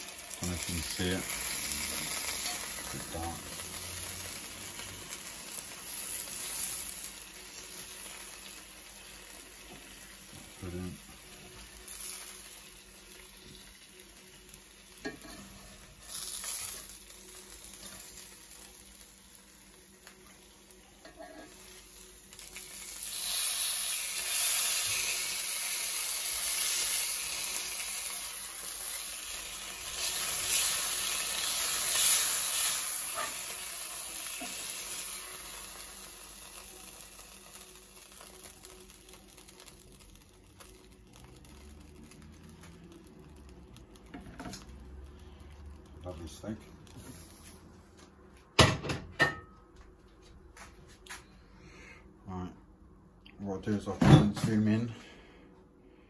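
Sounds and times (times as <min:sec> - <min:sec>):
meat sizzling in a pan: 0:00.0 - 0:47.5.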